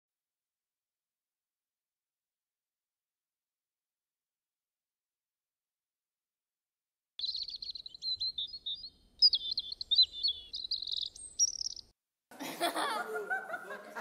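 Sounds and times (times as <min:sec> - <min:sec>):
small birds chirping: 0:07.2 - 0:12.0.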